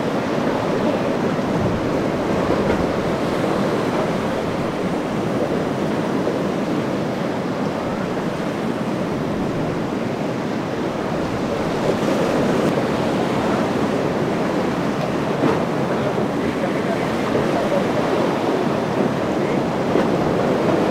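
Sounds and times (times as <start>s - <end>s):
waves breaking: 0.0s - 20.9s
wind buffeting microphone: 0.0s - 20.9s.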